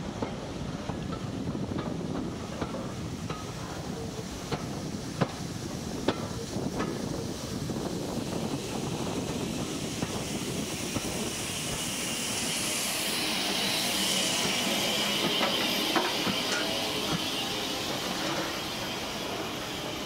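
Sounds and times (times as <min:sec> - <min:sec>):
steam hissing: 0:00.0 - 0:20.0
steam train rumbling: 0:00.0 - 0:20.0.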